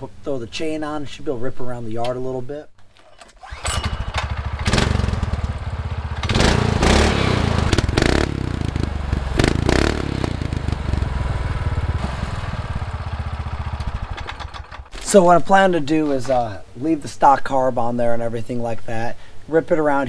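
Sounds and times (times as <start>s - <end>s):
small engine revving and idling: 3.4s - 14.9s.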